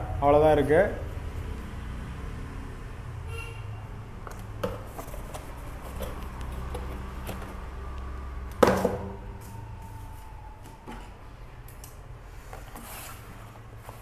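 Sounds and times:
cardboard box rustling: 0:04.8 - 0:07.6.

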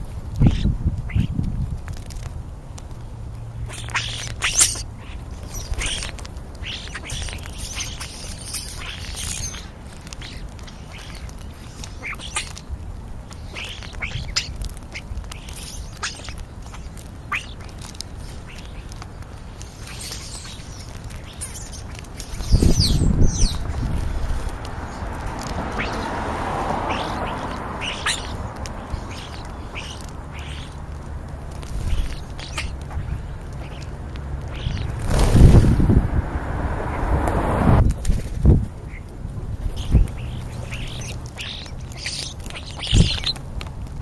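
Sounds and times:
starlings squawking and chirping: 0:00.0 - 0:01.4, 0:03.6 - 0:37.2, 0:38.8 - 0:43.4
low rumble: 0:32.7 - 0:40.2.

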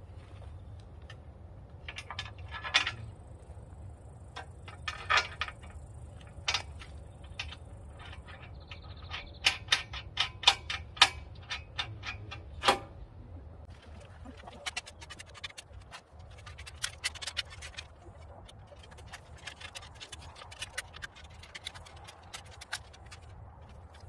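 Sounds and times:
metallic clicks and knocks: 0:01.8 - 0:03.1, 0:04.3 - 0:13.0, 0:14.6 - 0:24.0.

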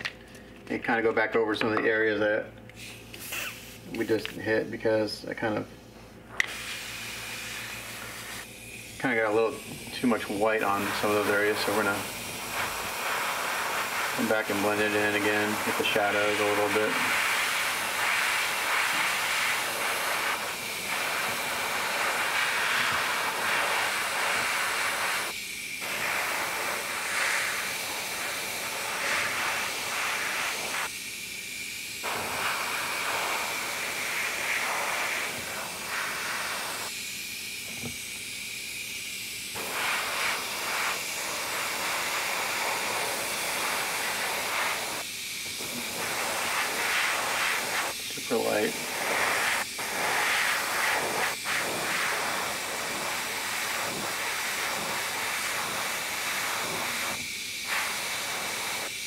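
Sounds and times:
airbrush spraying hiss: 0:02.8 - 0:04.6, 0:06.3 - 0:59.0.

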